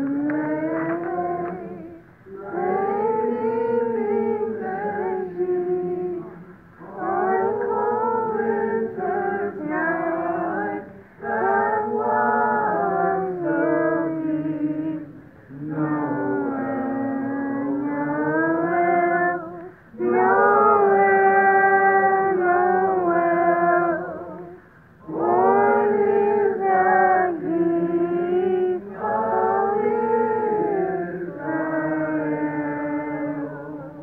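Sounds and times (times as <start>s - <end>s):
voices singing a carol: 0.0s - 34.0s.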